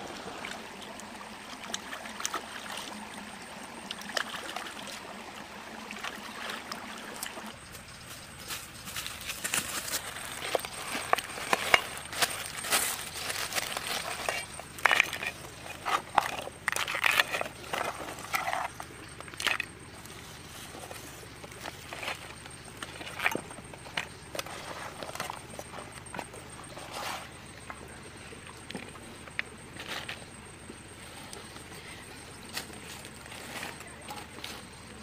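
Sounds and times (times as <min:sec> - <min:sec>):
hands handling vegetables and crabs: 0:07.8 - 0:35.0.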